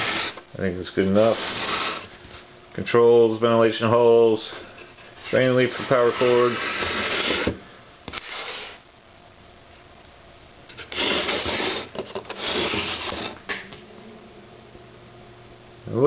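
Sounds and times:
rubbing and scraping: 0.0s - 0.4s, 1.0s - 2.4s, 4.7s - 8.8s, 10.7s - 13.4s.

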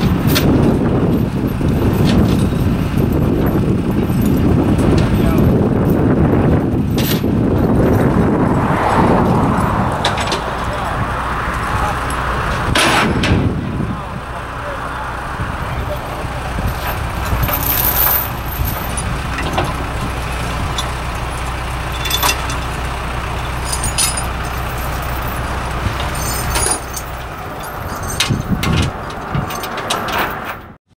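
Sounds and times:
engine idling: 0.0s - 30.2s
metallic clanks and clicks: 16.7s - 21.0s, 21.9s - 22.7s, 26.0s - 30.7s.

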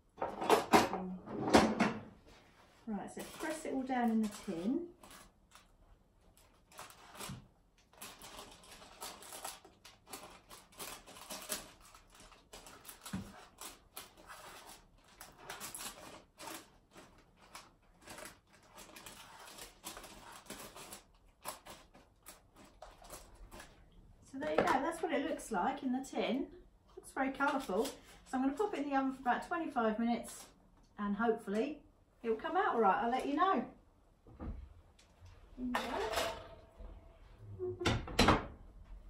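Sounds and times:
baking paper rustling: 2.3s - 23.9s.

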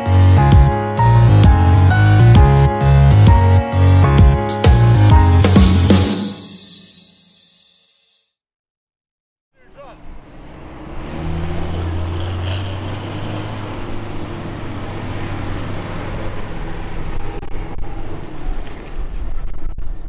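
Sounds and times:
tractor engines driving past: 9.6s - 19.6s.

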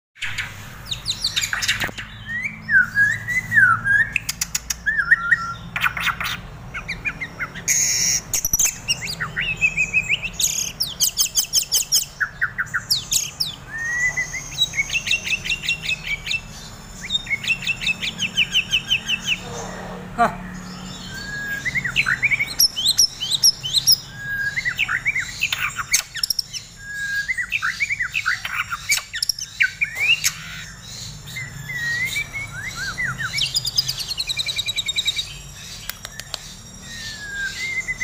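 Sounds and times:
songbird whistling song: 0.2s - 19.9s, 20.5s - 38.0s
bird harsh noisy bursts: 6.4s - 38.0s.

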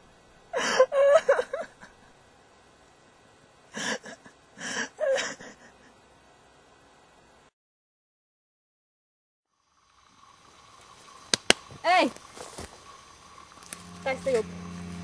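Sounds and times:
girl whimpering and sobbing: 0.5s - 1.4s, 3.8s - 5.6s.

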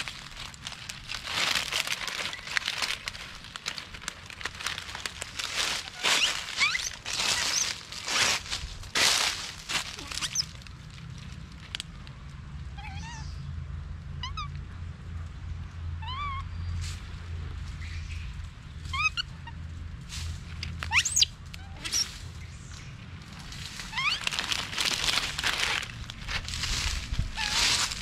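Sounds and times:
dry leaves crackling: 0.0s - 12.4s, 20.0s - 28.0s
baby monkey high cries: 5.8s - 7.8s, 9.9s - 10.5s, 14.2s - 14.5s, 16.0s - 16.5s, 18.9s - 19.6s, 20.8s - 22.1s, 23.8s - 24.6s, 27.3s - 28.0s.

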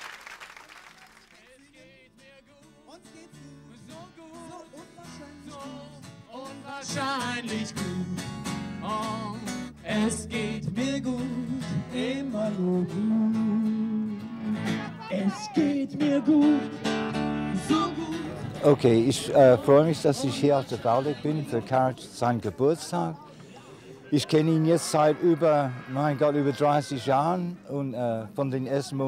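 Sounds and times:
man singing: 1.4s - 23.2s, 24.1s - 29.0s
strummed acoustic guitar: 2.1s - 22.6s.

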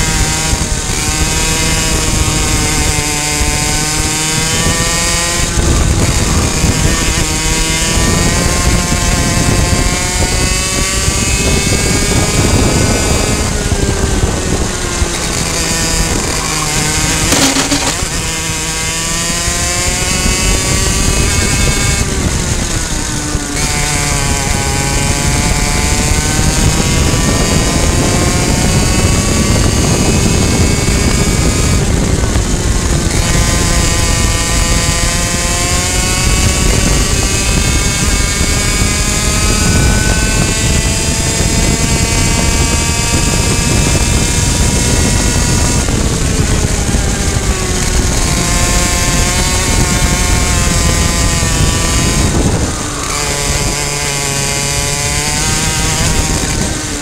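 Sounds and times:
kart engine revving: 0.0s - 57.0s
wind noise: 0.0s - 57.0s
chassis noise: 13.4s - 19.9s.

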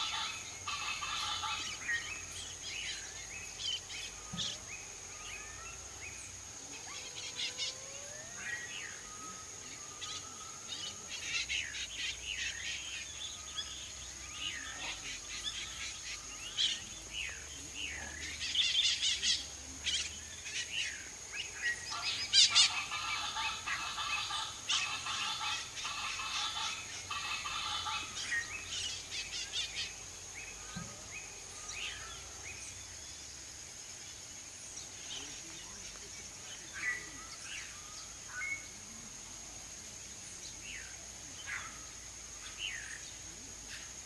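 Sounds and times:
bird harsh pulsing calls: 0.0s - 30.7s
birds chirping and whistling: 20.1s - 33.1s.

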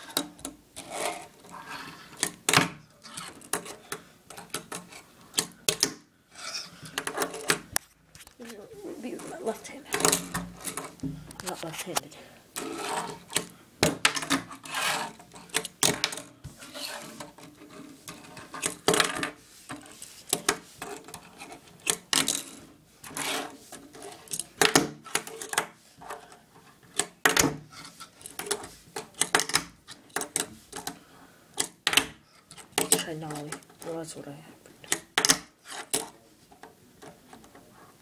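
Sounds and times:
fingerboard wheels rolling: 0.0s - 5.1s, 12.6s - 26.4s.

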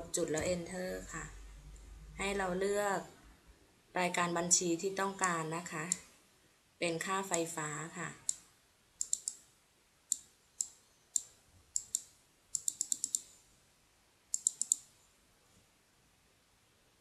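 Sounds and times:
computer mouse clicking: 5.2s - 6.0s, 8.2s - 8.4s, 9.0s - 9.4s, 10.1s - 13.4s, 14.3s - 14.9s.

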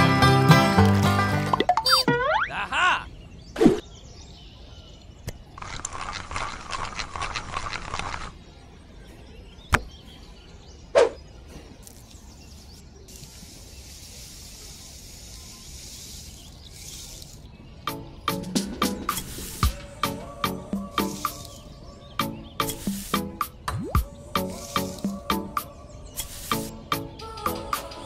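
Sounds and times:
sticks scraping through sand: 19.1s - 19.6s, 21.0s - 21.6s, 22.6s - 23.3s, 24.4s - 25.2s.

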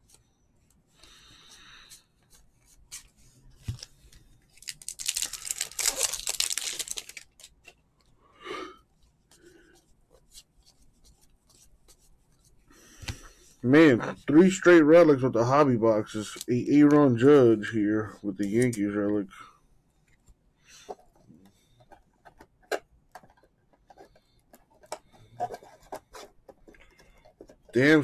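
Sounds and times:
foil wrapper tearing and crinkling: 4.5s - 7.7s.

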